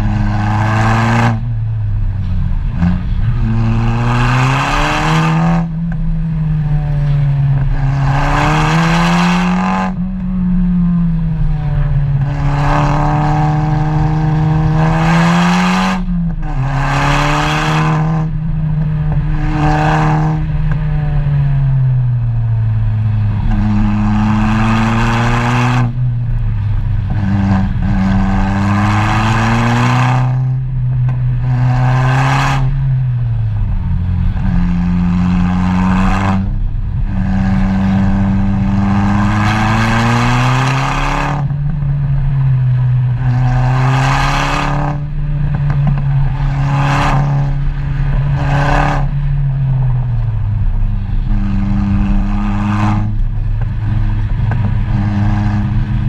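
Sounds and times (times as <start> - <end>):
vehicle engine revving hard: 0.0 - 1.6, 2.7 - 5.9, 7.0 - 10.1, 11.4 - 18.4, 19.1 - 20.7, 23.2 - 26.0, 27.0 - 30.7, 31.4 - 32.9, 33.6 - 41.8, 43.1 - 49.3, 50.9 - 56.0.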